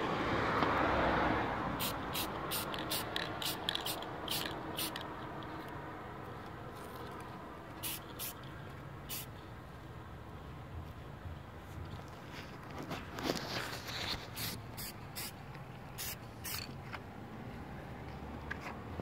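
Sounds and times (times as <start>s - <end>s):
spray paint can hissing: 1.8s - 5.1s, 7.8s - 8.4s, 9.1s - 9.3s, 14.2s - 16.7s.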